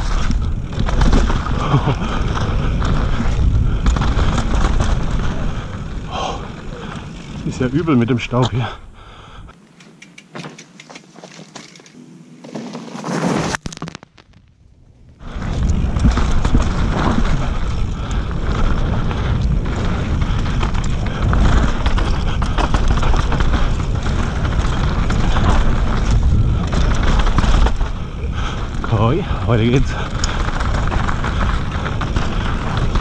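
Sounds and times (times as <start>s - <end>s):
tyres rumbling on dirt: 0.0s - 9.1s, 15.2s - 33.0s
bike rattling over bumps: 0.0s - 9.5s, 10.3s - 13.6s, 15.1s - 33.0s
wind rushing on microphone: 15.2s - 33.0s.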